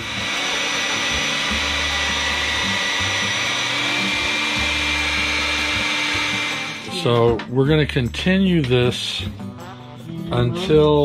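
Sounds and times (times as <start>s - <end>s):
hair dryer blowing with whine: 0.0s - 7.4s.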